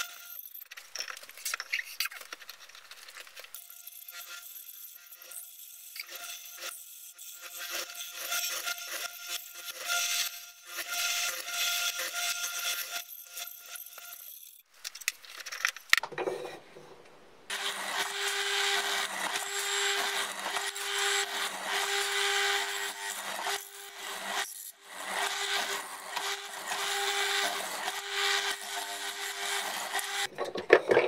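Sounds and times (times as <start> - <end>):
mortiser motor humming: 17.5 - 31.0.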